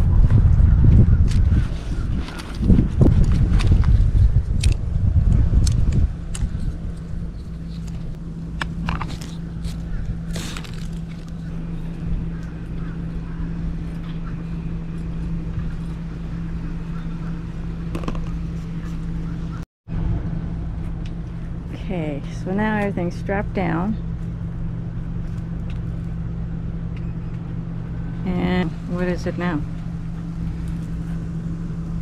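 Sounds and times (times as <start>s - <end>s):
loud low rumble: 0.0s - 32.0s
steady low hum: 0.0s - 32.0s.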